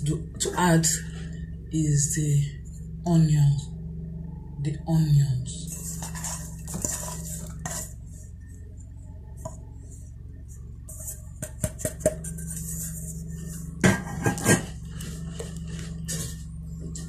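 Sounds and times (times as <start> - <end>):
metal spoon scraping steel bowl: 5.7 - 8.0.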